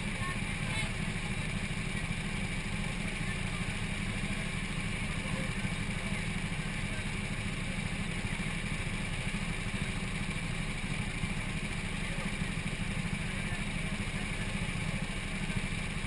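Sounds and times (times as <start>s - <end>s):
go-kart engine idling: 0.0s - 16.0s.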